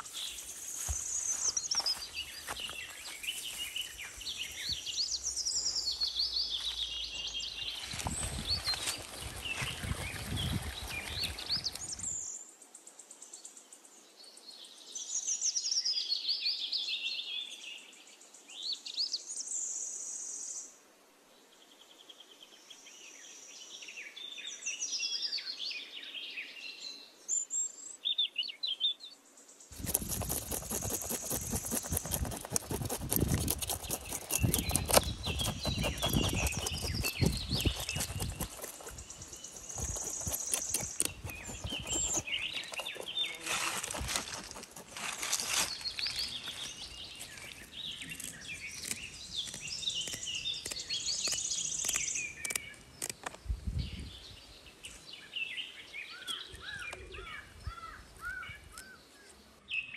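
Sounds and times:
birds chirping: 0:29.7 - 0:59.9.

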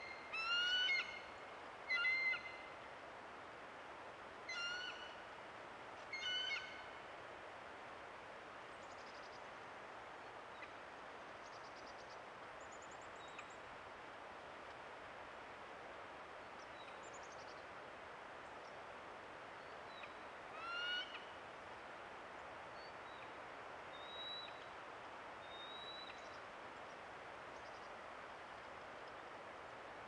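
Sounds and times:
outdoor hiss: 0:00.0 - 0:30.0
eagle calling: 0:00.1 - 0:01.2, 0:01.9 - 0:02.5.

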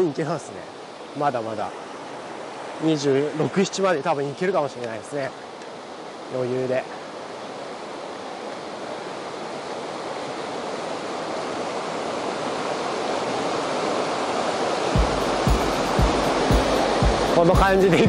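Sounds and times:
river rapids roaring: 0:00.0 - 0:18.0
low music beat: 0:15.0 - 0:18.0.

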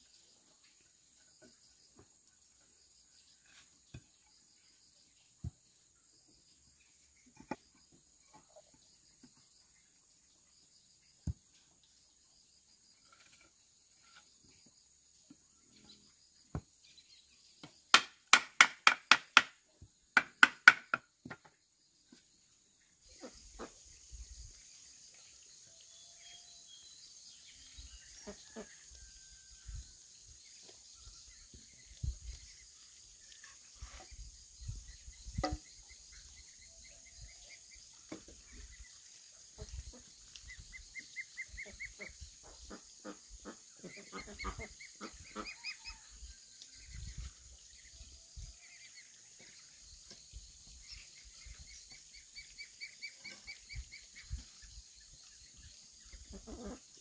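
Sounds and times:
knocks and taps: 0:20.2 - 0:21.5.

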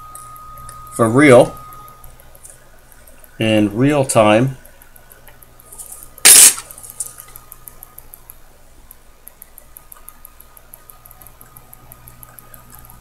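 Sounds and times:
low electrical hum: 0:00.0 - 0:13.0
sharp click: 0:06.3 - 0:07.2.

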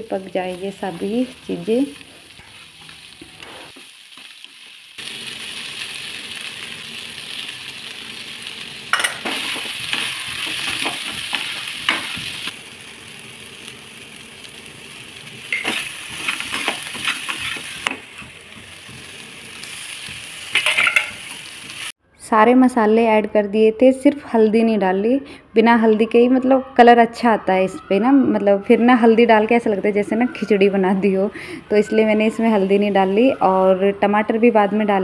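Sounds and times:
vegetables sizzling in a pan: 0:00.0 - 0:22.0
metal spatula scraping pan: 0:15.5 - 0:18.4.

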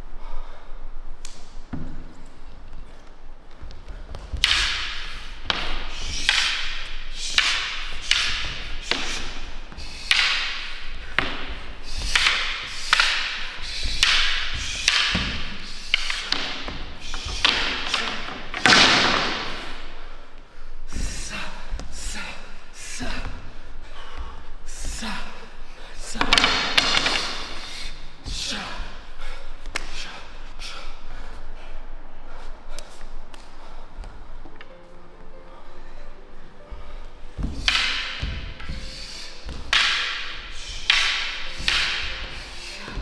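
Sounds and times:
martial arts strikes thudding: 0:04.1 - 0:19.8.

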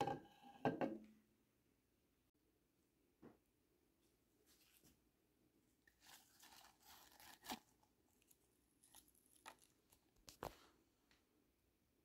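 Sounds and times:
paper tea bags rustling: 0:05.8 - 0:10.7.

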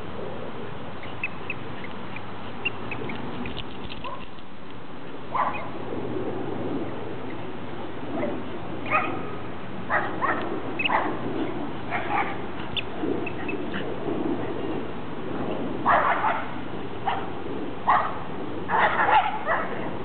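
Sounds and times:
dogs barking: 0:04.0 - 0:04.3, 0:05.3 - 0:05.8, 0:08.2 - 0:13.8, 0:15.8 - 0:19.9.

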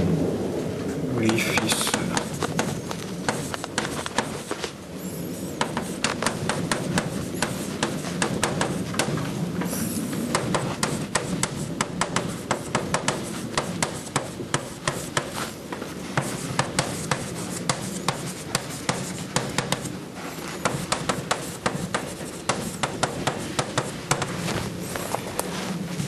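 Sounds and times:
chalk tapping on blackboard: 0:01.3 - 0:04.6, 0:05.6 - 0:09.2, 0:10.3 - 0:19.9, 0:20.6 - 0:24.5.

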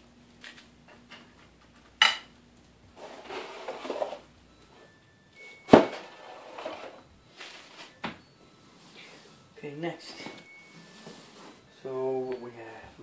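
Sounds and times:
rustling: 0:03.0 - 0:12.6.

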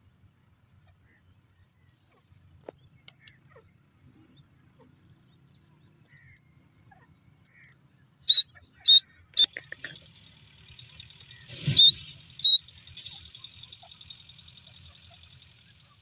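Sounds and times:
bird calling in high notes: 0:08.3 - 0:16.0.

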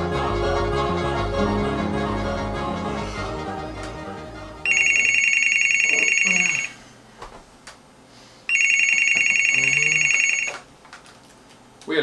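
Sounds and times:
telephone ringing: 0:04.6 - 0:06.8, 0:08.5 - 0:10.7.

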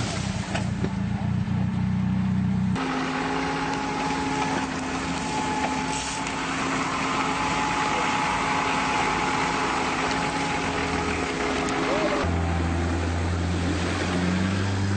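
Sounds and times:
off-road vehicle engine under load: 0:00.0 - 0:14.9.

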